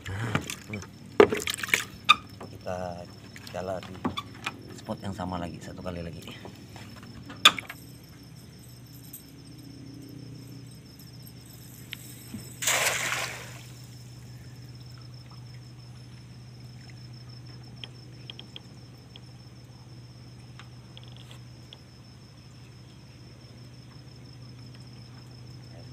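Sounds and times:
cricket chirping: 0:00.0 - 0:25.9
low steady hum: 0:00.0 - 0:25.9
net splashing on water: 0:12.5 - 0:14.0
faint ticks: 0:16.2 - 0:19.3, 0:20.5 - 0:21.9.

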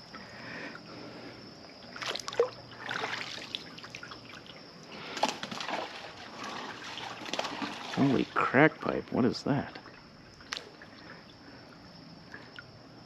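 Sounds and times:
water trickling around a kayak: 0:00.0 - 0:13.0
short water splashes: 0:01.8 - 0:11.4.

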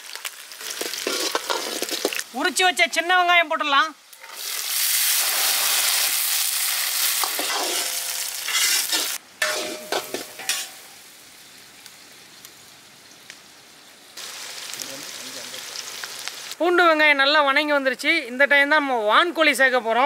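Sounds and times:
food sizzling in oil: 0:00.0 - 0:16.8
metal ladle scraping and clinking: 0:01.0 - 0:02.2, 0:07.2 - 0:10.9.

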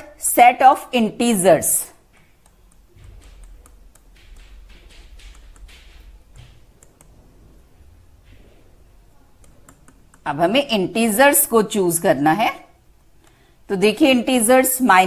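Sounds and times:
stylus tapping on pen tablet: 0:02.1 - 0:07.2.

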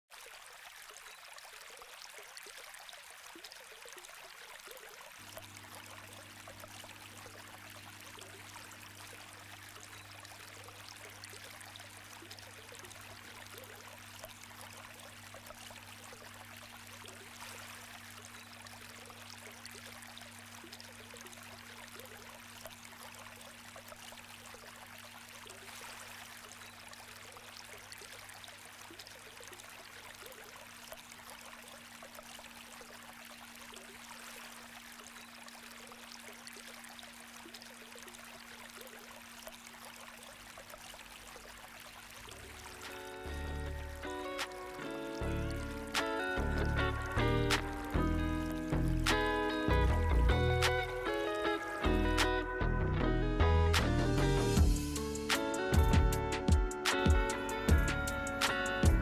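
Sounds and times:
low steady hum: 0:05.2 - 0:29.3, 0:30.1 - 0:49.1, 0:49.7 - 0:55.1.

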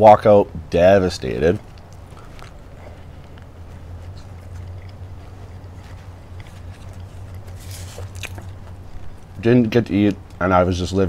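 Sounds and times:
steady low hum: 0:00.0 - 0:11.0
person chewing: 0:01.6 - 0:09.4.

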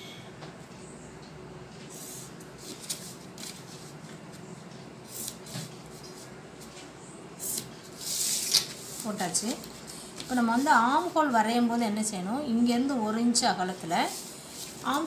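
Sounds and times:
paper and ruler rustling: 0:02.6 - 0:04.2, 0:07.4 - 0:11.2, 0:13.9 - 0:15.0.

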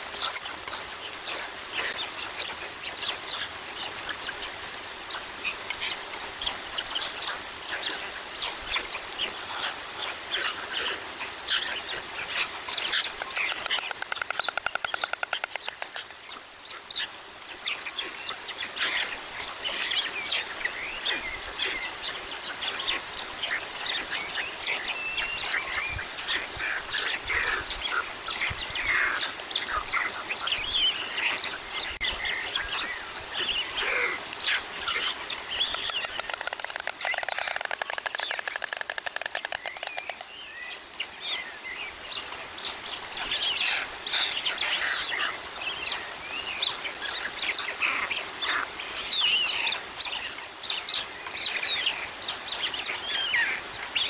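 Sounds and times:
small birds chirping: 0:00.0 - 0:54.0
stork bill clattering: 0:13.2 - 0:16.0, 0:35.6 - 0:40.2.

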